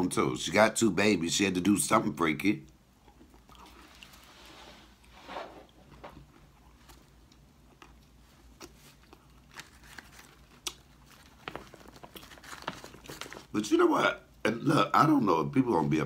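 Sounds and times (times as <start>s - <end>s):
person chewing food: 3.0s - 4.4s, 5.9s - 13.5s.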